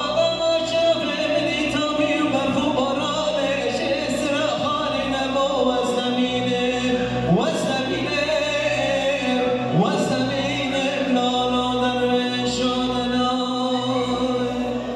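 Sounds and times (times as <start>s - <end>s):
electronic keyboard accompaniment: 0.0s - 14.9s
man singing folk song: 0.0s - 14.9s.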